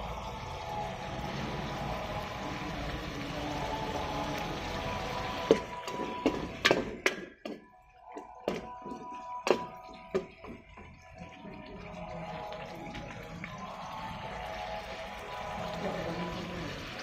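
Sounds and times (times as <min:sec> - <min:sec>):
spatula scraping and knocking pot: 0:05.5 - 0:10.9.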